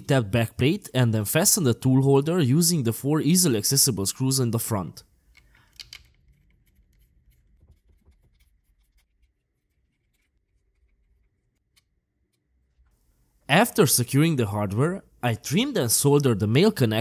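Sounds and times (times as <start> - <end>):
screwdriver clicking and scraping: 5.3 - 12.6.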